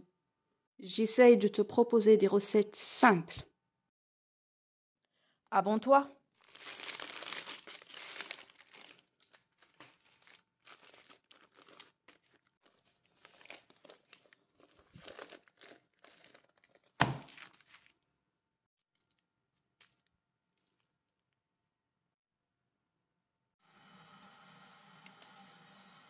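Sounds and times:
baking paper crinkling: 6.4 - 18.0.

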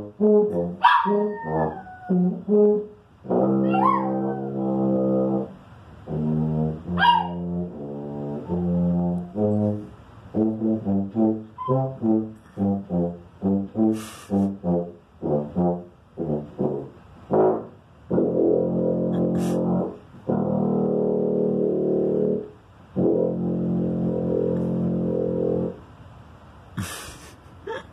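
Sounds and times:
tuba playing a tune: 0.0 - 25.9
small dog howling: 0.8 - 2.2, 3.6 - 4.6, 7.0 - 7.4.

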